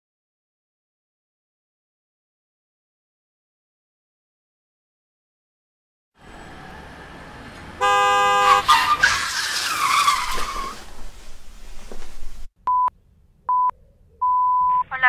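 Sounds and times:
tyres screeching: 6.2 - 12.4
car horn blaring: 7.8 - 8.9.

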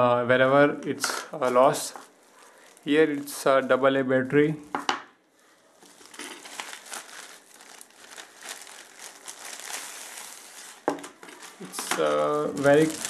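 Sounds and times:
plastic wrapping crinkling: 1.4 - 3.6, 5.4 - 13.0.

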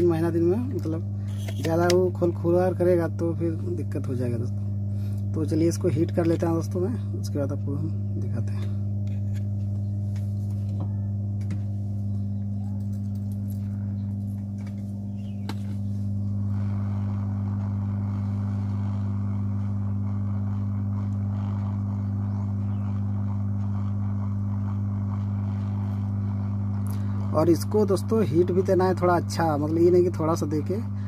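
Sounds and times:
low electrical hum: 0.0 - 31.0
hot air gun blower hissing: 1.1 - 2.0, 15.4 - 30.0.

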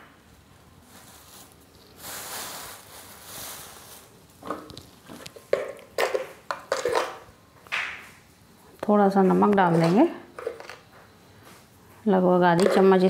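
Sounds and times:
soft rustling hiss: 0.2 - 5.5
kitchen utensils clinking: 5.4 - 7.3, 9.4 - 10.9, 12.4 - 13.0.

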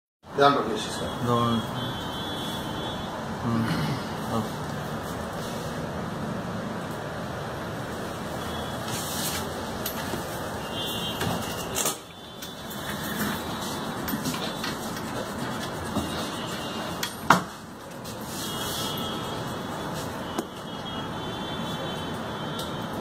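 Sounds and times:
pen scratching on paper: 12.9 - 16.9.

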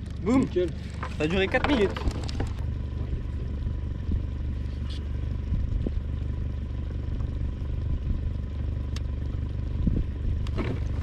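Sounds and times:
wind buffeting microphone: 9.8 - 10.4.

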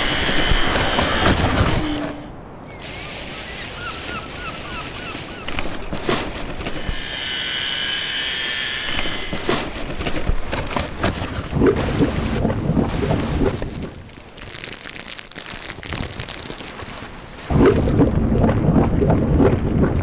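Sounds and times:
synthetic ocean surf rush: 0.0 - 10.3.

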